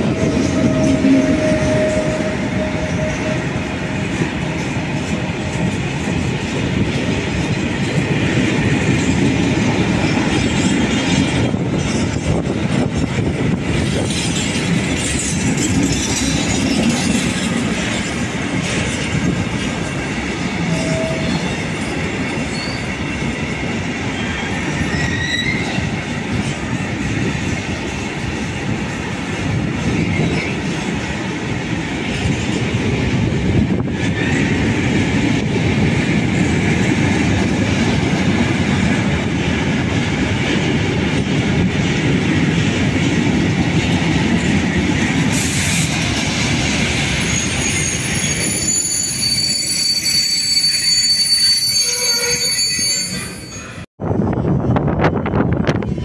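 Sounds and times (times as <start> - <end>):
high wheel squeals: 0.0 - 3.8, 20.6 - 23.3, 24.1 - 25.9, 47.1 - 53.8
freight train wheels rumbling: 0.0 - 56.0.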